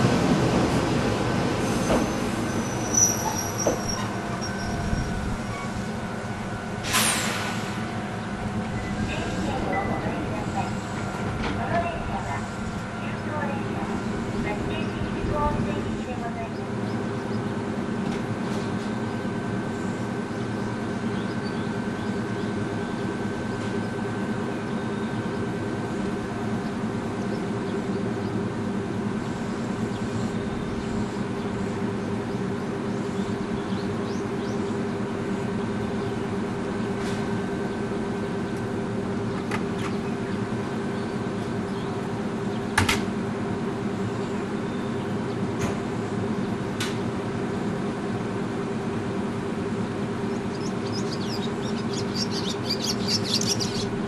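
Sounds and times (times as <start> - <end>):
electric train humming: 0.0 - 54.0.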